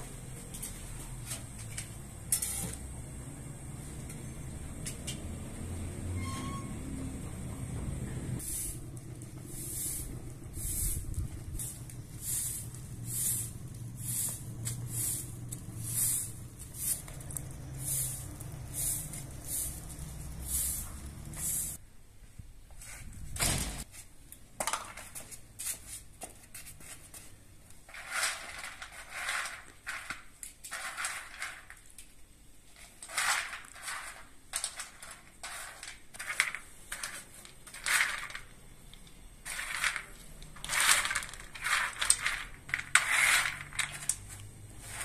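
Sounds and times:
broom sweeping pavement: 8.4s - 21.8s, 25.1s - 31.7s, 32.7s - 38.5s, 39.4s - 45.0s.

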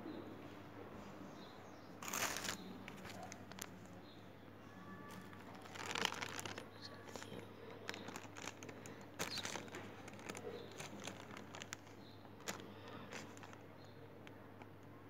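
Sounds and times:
faint low hum: 0.0s - 15.0s
plastic bag crinkling: 2.0s - 4.0s, 4.8s - 14.4s
small crackles and clicks: 2.0s - 4.0s, 5.1s - 14.9s.

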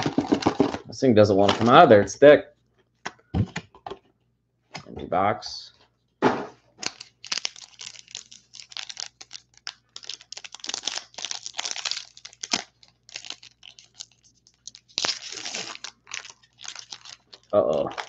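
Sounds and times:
foil pack crinkling and tearing: 6.8s - 18.0s.

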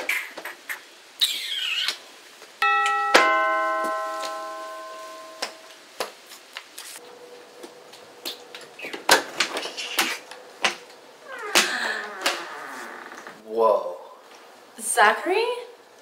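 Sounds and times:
two-note doorbell chime: 2.6s - 5.8s
door unlatching and opening: 11.3s - 13.4s.

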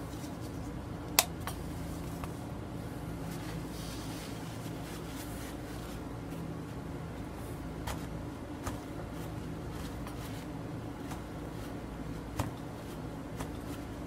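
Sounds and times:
paper towel crumpling: 3.3s - 6.8s.

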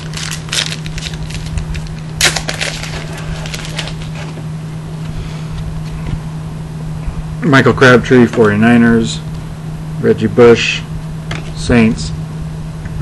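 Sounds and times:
foil card pack crinkling: 0.0s - 4.4s.

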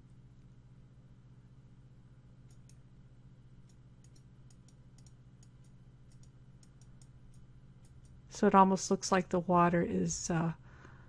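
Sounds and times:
low electrical hum: 0.0s - 11.0s
computer mouse clicks: 2.4s - 2.8s, 3.6s - 8.2s.

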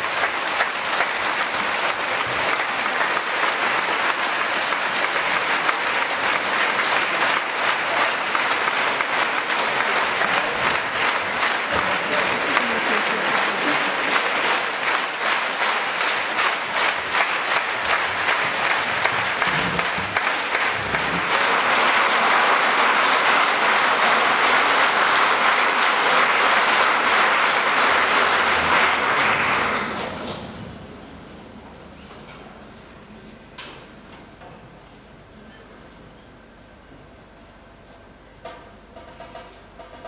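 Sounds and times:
audience applauding: 0.0s - 30.3s.

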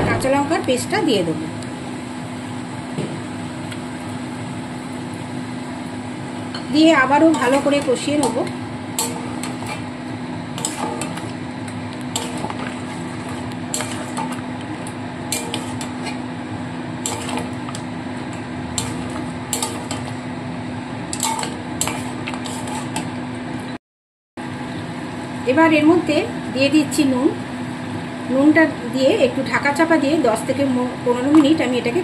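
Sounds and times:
metal spatula scraping a pan: 7.2s - 9.9s, 10.6s - 11.4s, 12.1s - 14.5s, 15.3s - 16.2s, 17.0s - 17.8s, 18.7s - 20.2s, 21.1s - 23.1s.

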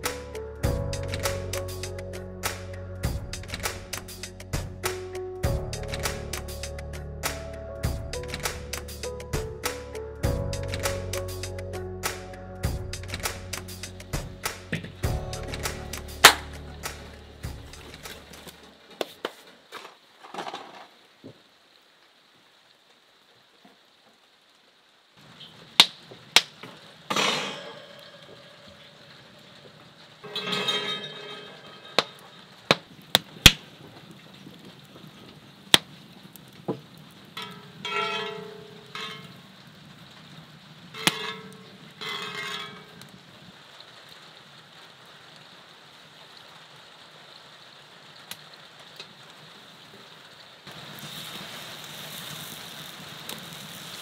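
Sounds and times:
wood fire crackling and popping: 2.6s - 6.6s, 7.8s - 9.5s, 12.6s - 21.4s, 25.2s - 44.8s, 48.1s - 54.0s
hiss: 50.7s - 54.0s.

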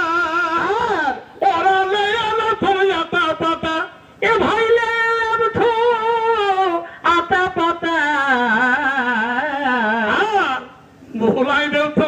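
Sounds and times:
man singing through loudspeaker: 0.0s - 12.0s.

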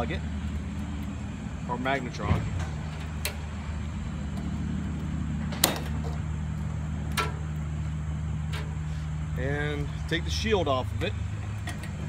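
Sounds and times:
steady low drone: 0.0s - 12.0s
wire connectors clicking off: 2.2s - 3.5s, 5.5s - 7.7s.

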